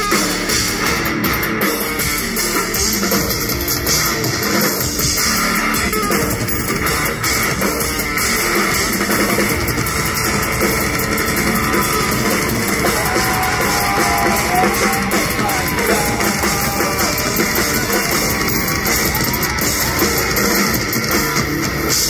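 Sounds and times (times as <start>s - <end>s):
live heavy metal band: 0.0s - 22.0s
wavering guitar notes: 5.2s - 9.0s.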